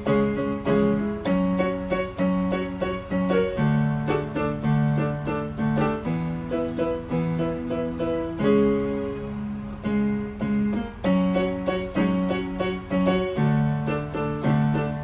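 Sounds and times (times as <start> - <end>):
electronic keyboard melody: 0.0 - 15.0.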